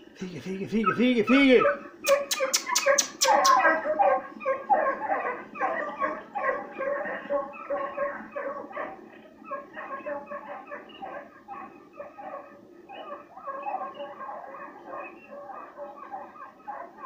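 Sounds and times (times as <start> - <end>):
hounds yelping: 0.8 - 17.0
sharp clicks: 2.0 - 3.6.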